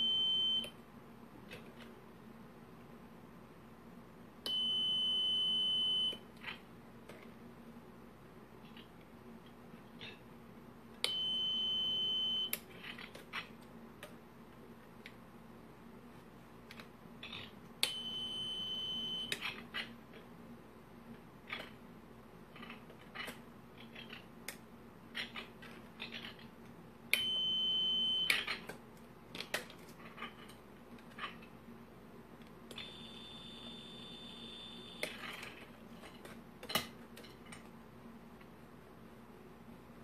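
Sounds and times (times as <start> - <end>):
piezo buzzer beeping: 17.9 - 19.3, 32.8 - 35.0.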